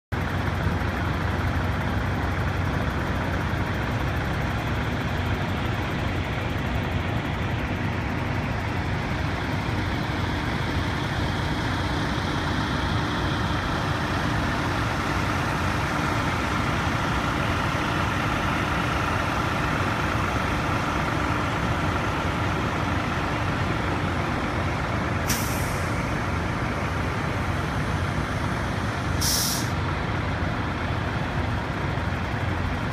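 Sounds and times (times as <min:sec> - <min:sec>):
diesel truck engines idling: 0:00.1 - 0:32.9
air-brake hisses: 0:25.3 - 0:25.9, 0:29.2 - 0:29.8.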